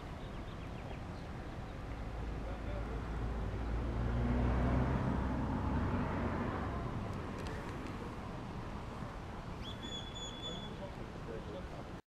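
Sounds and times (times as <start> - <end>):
outdoor noise: 0.0 - 12.0
vehicle engine passing: 1.8 - 9.2
short high chirp: 9.6 - 10.8.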